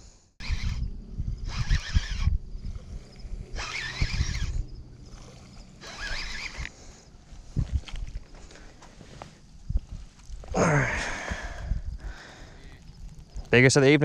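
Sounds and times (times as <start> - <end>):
fishing reel gears whirring: 0.4 - 7.1.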